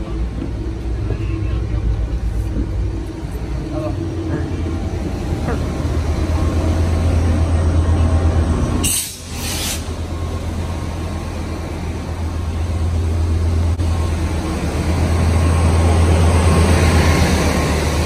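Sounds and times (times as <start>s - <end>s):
diesel locomotive idling: 0.0s - 18.0s
short hiss: 8.8s - 9.9s.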